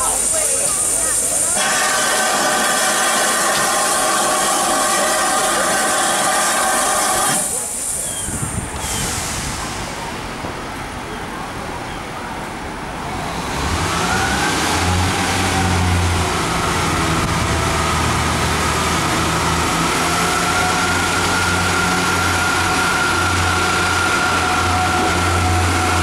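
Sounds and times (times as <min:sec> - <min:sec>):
high whine: 0:00.0 - 0:07.8, 0:14.2 - 0:26.0
diesel train engine drone: 0:00.0 - 0:26.0.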